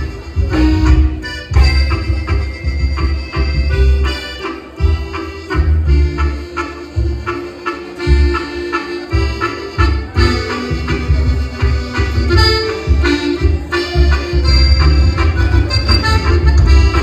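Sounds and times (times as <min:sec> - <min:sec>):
pounding bass beat: 0:00.0 - 0:04.2, 0:09.2 - 0:17.0
accordion dance music: 0:00.0 - 0:17.0.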